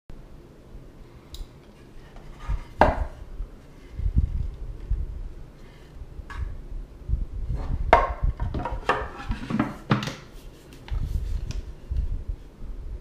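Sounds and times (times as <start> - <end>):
low rumbling handling noise: 1.6 - 9.8
wooden box lid knocking and clicking: 7.9 - 10.2.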